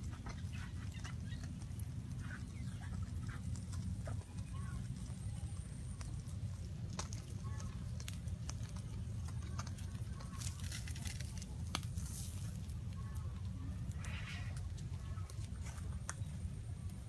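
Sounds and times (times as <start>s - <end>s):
fire crackling and popping: 0.0s - 17.0s
steady low rumble: 0.0s - 17.0s.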